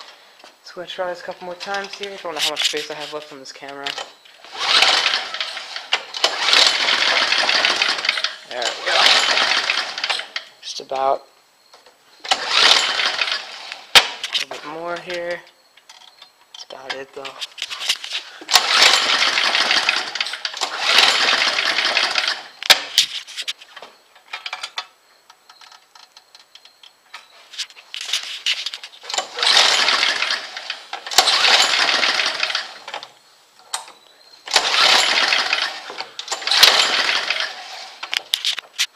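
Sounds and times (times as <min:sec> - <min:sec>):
small engine cranking: 0:04.0 - 0:10.5, 0:12.2 - 0:14.5, 0:18.5 - 0:22.9, 0:29.0 - 0:33.0, 0:34.5 - 0:38.5.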